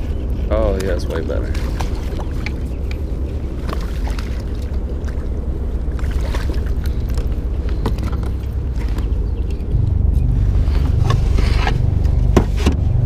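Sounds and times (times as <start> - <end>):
water around kayak: 0.0 - 13.0
wind on microphone: 4.9 - 13.0.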